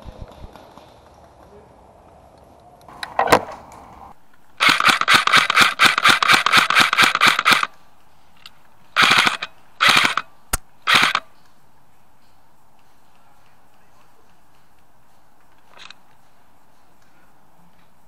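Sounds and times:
airsoft rifle firing: 4.6 - 7.7, 9.0 - 11.3.

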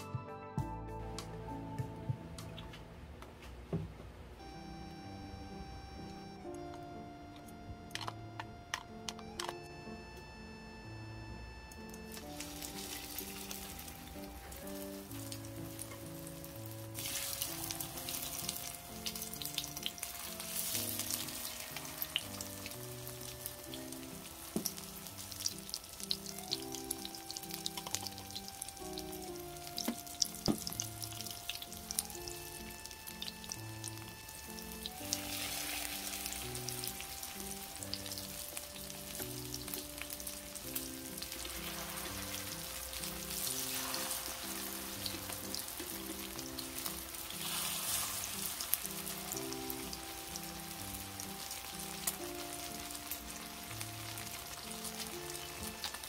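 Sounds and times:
soft background music: 0.0 - 56.0
battered slices frying in oil: 11.6 - 56.0.

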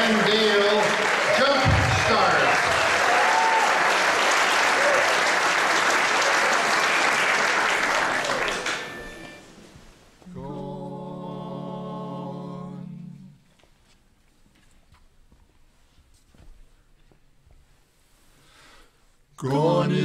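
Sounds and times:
audience applauding: 0.0 - 9.4
vocal quartet holding a note: 10.3 - 13.4, 19.4 - 20.0.

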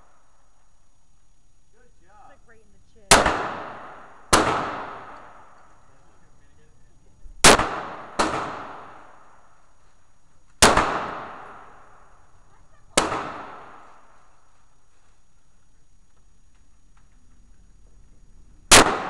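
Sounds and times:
pistol shots with echo: 3.1 - 5.8, 7.4 - 9.5, 10.6 - 12.2, 13.0 - 14.2, 18.7 - 19.0.

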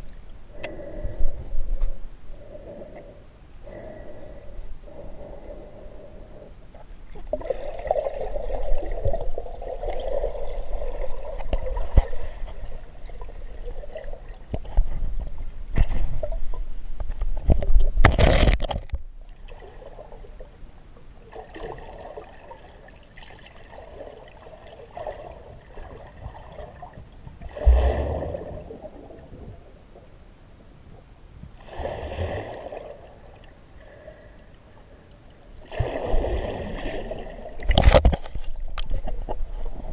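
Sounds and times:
muffled water gurgling underwater: 23.7 - 30.2.

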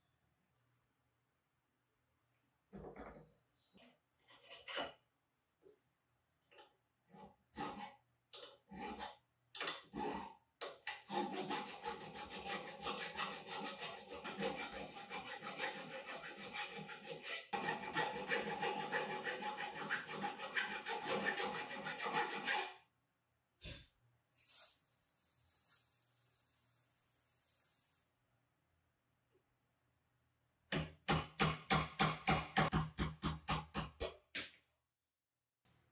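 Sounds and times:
hand tool rasping on metal: 7.1 - 8.0, 8.7 - 9.2, 11.0 - 22.8.

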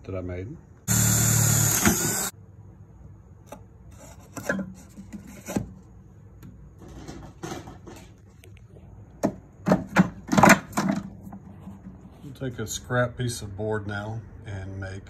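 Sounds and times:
cordless drill boring wood: 0.9 - 2.3.

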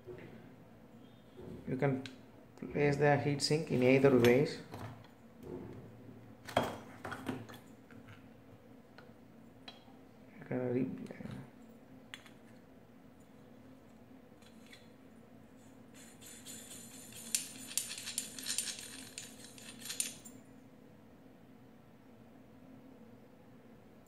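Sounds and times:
faint steady hum: 0.0 - 24.0
metallic clicking and rattling: 16.3 - 20.3.

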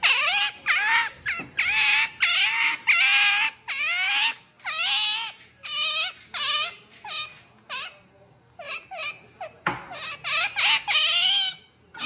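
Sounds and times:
otter squealing: 0.0 - 8.0.

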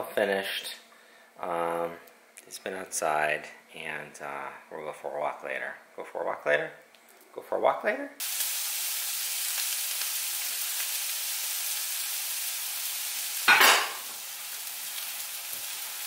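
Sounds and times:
meat sizzling in a skillet: 8.2 - 16.0.

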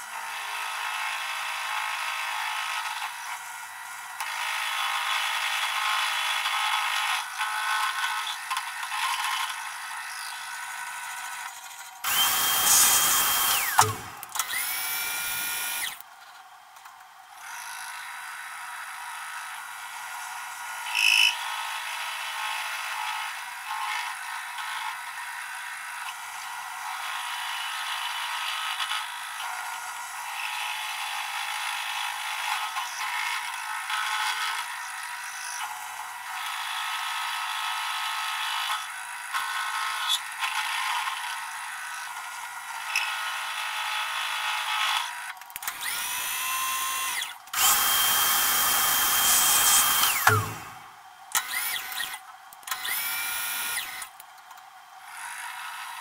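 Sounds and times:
workshop vacuum whining: 12.0 - 16.0, 45.6 - 54.1
end mill cutting metal: 12.1 - 16.0, 47.2 - 52.2.

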